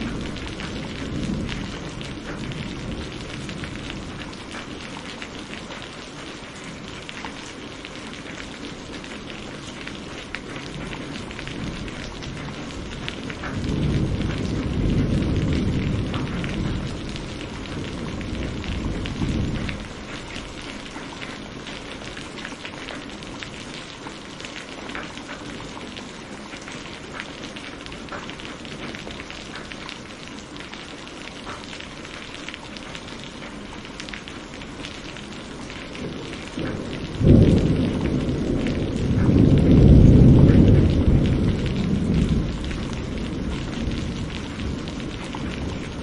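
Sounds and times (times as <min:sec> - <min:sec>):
thunder rumble: 0:00.0 - 0:05.6, 0:10.1 - 0:24.2, 0:35.0 - 0:46.0
rain on foliage: 0:00.0 - 0:46.0
water drips: 0:00.0 - 0:46.0.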